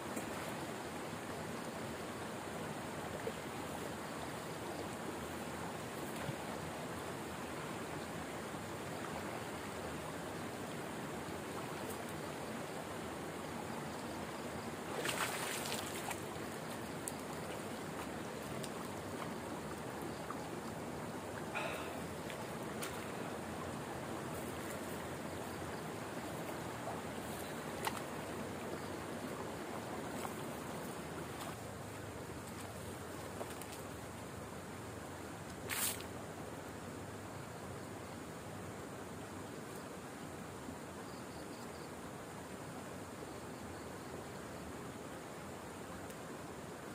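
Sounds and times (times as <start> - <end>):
flowing water rushing: 0.0 - 35.4
water splash: 14.9 - 16.2.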